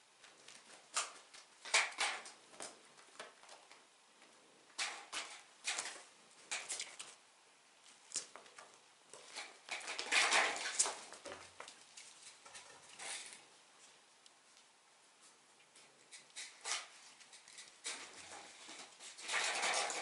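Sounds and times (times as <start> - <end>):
cats pawing at plastic plates: 0.2 - 7.2, 7.9 - 13.4, 15.7 - 20.0.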